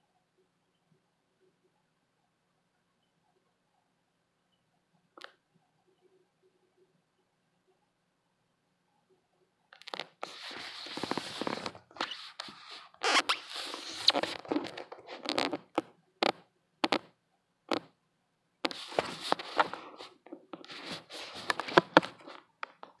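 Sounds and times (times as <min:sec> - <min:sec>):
phone handling rustling and scraping: 0:09.8 - 0:15.9, 0:18.7 - 0:23.0.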